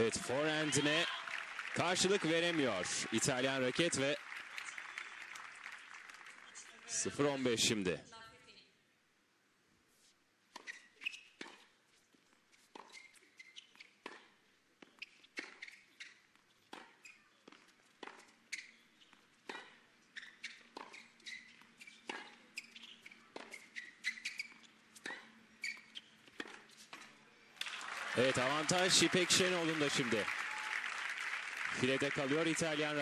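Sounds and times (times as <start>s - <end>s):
tennis ball bouncing: 12.7s - 27.8s.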